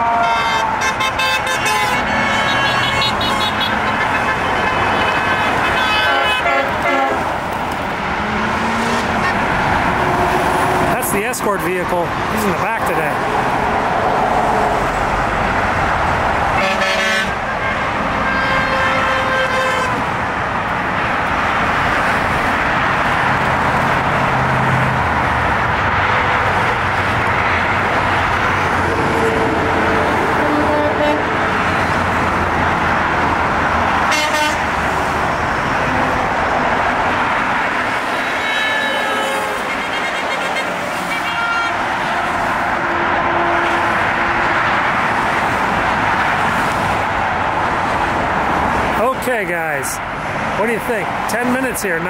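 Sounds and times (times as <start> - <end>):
car horns honking: 0.0 - 7.4, 16.5 - 20.1, 28.8 - 31.9, 34.0 - 34.8, 38.0 - 44.9
cars passing at highway speed: 0.0 - 52.0.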